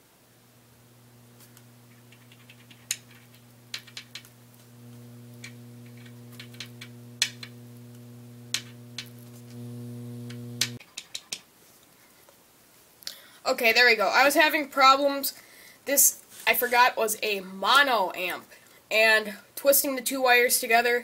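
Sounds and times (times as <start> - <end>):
speaker low electrical buzz: 0.0 - 10.8
hands clicking and tapping: 1.4 - 4.4, 10.3 - 11.5.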